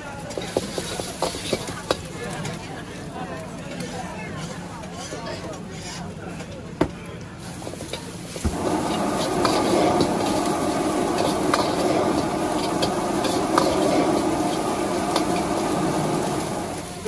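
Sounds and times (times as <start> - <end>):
food sizzling in hot oil: 0.4 - 2.2, 7.4 - 17.0.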